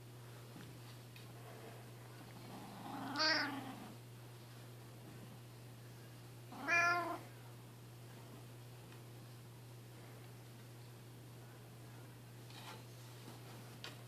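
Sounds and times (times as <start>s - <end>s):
cat meowing: 3.0s - 3.7s, 6.5s - 7.2s.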